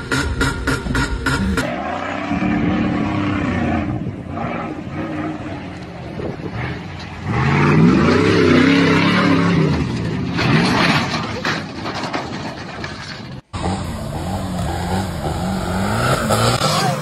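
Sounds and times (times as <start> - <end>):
pickup truck engine revving: 13.5 - 17.0.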